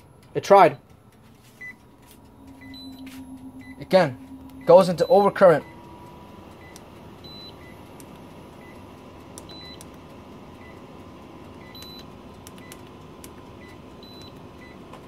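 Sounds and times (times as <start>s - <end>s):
faint electrical hum: 0.0s - 15.0s
electronic alarm beeping: 1.6s - 9.9s, 10.6s - 10.9s, 11.6s - 12.8s, 13.6s - 14.8s.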